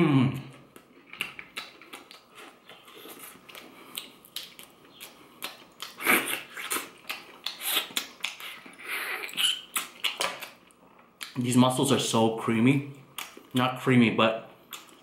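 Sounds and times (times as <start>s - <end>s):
wet chewing and lip smacks: 0.6s - 11.4s, 13.1s - 13.6s, 14.6s - 15.0s.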